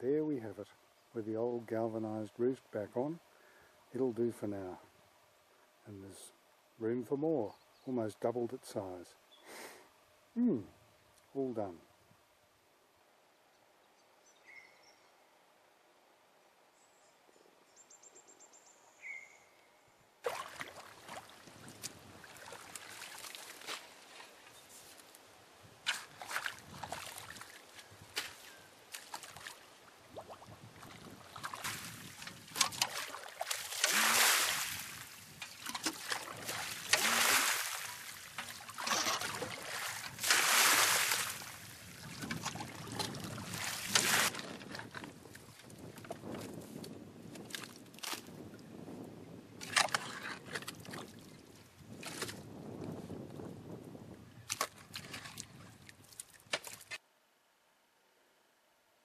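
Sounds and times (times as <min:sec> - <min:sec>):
muddy water sloshing and splashing: 0:20.2 - 0:24.6, 0:25.8 - 0:48.5, 0:49.6 - 0:52.5, 0:54.4 - 0:57.0.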